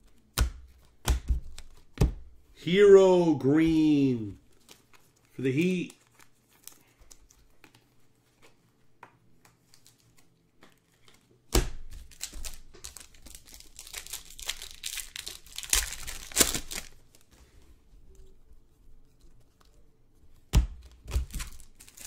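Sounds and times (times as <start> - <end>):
wrapper ripping: 11.9 - 17.1, 21.2 - 22.0
wrapper crinkling: 12.0 - 17.3, 21.2 - 22.0.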